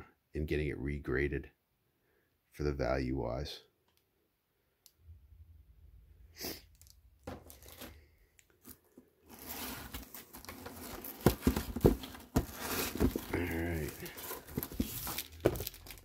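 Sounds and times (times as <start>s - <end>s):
plastic and paper rustling: 7.3s - 16.0s.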